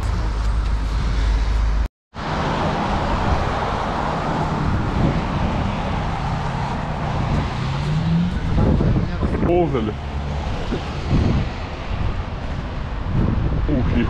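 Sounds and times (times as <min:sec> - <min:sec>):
road traffic: 0:00.0 - 0:14.0
vehicle engine rising in pitch: 0:02.2 - 0:12.2.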